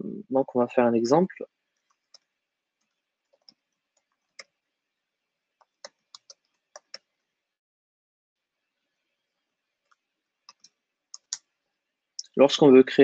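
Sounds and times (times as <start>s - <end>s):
computer keyboard keystrokes: 5.6s - 7.1s.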